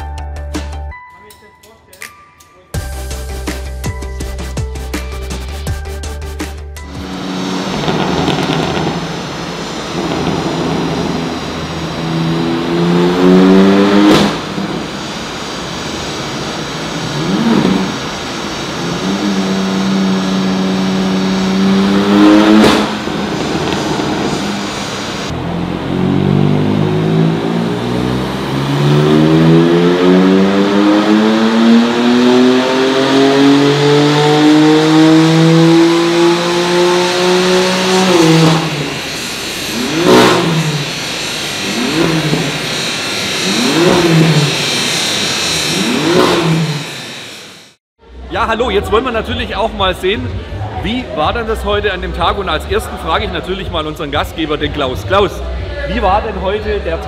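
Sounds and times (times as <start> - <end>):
car engine revving under load: 6.8 - 47.8.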